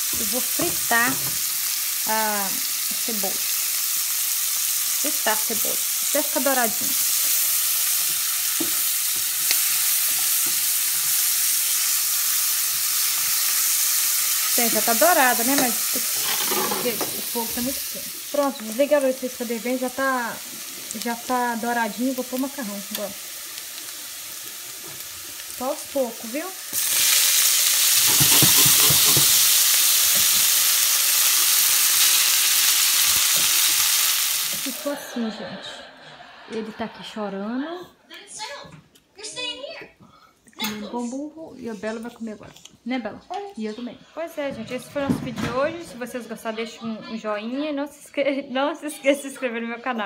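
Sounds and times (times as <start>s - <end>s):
onion sizzling in a pan: 0.0s - 35.4s.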